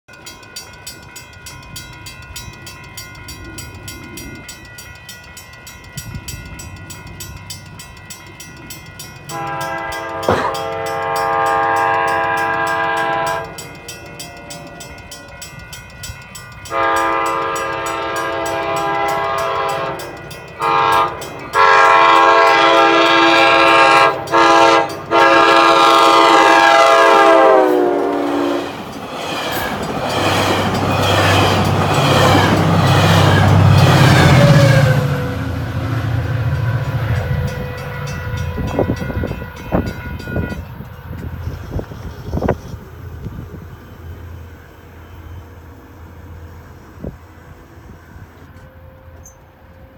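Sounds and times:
crossing bell ringing: 0.1s - 49.9s
rumble of passing train cars: 0.1s - 49.9s
train air horn blasts: 9.3s - 13.6s, 16.7s - 28.8s, 31.1s - 43.5s.

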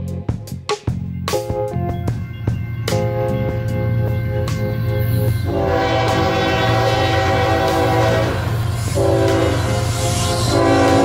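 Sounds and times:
locomotive air horn chord: 3.4s - 11.0s.

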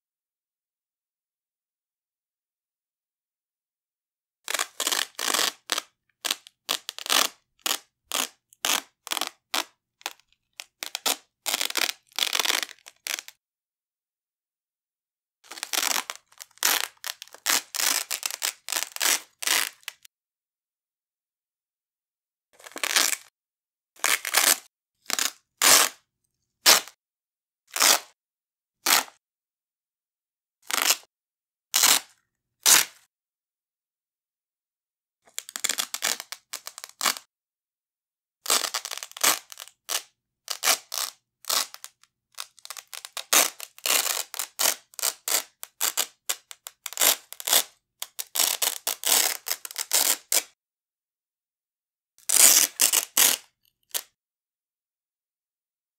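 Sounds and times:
hook-and-loop strap ripping: 4.5s - 13.4s, 15.5s - 20.1s, 22.6s - 23.3s, 24.0s - 26.0s, 26.6s - 27.0s, 27.7s - 28.2s, 28.8s - 29.2s, 30.6s - 31.1s, 31.7s - 33.1s, 35.3s - 37.3s, 38.4s - 50.6s, 52.2s - 54.1s.

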